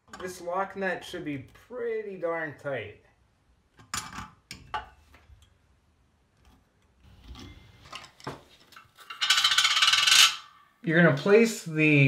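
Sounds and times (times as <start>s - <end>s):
metal flange rattling on sink: 9.0s - 10.4s
metal parts clicking: 9.0s - 10.4s.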